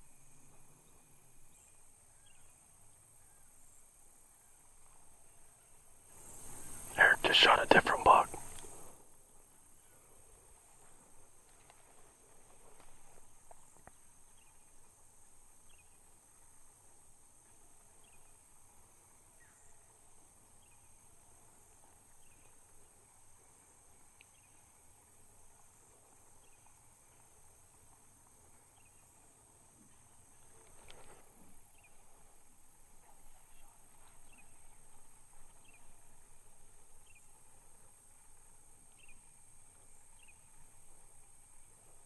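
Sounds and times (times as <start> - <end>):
insects droning: 0.0 - 42.0.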